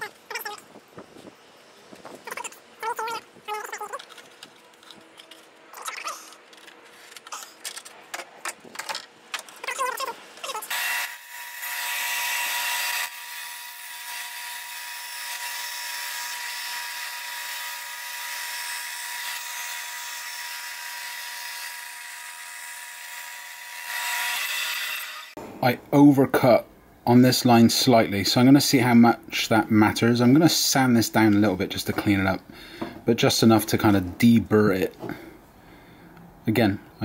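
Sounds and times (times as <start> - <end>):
short squeaks and clicks: 2.2 - 9.0
bandsaw cutting with whining motor: 10.7 - 25.4.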